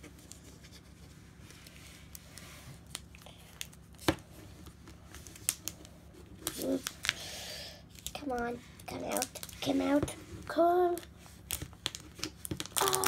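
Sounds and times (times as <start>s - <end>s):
foil wrapper crinkling: 2.1s - 7.3s, 7.9s - 10.0s, 10.8s - 13.0s.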